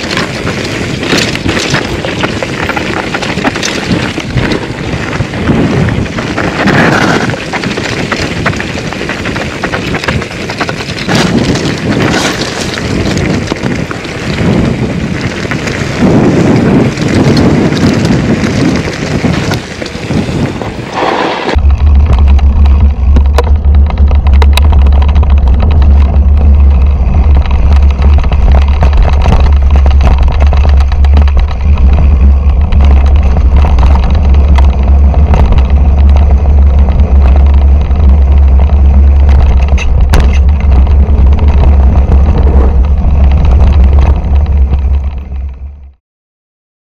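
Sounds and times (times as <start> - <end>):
mountain bike rattling over rocks: 0.0 - 46.0
wind noise on microphone: 0.0 - 46.0
loud steady low rumble: 21.5 - 46.0.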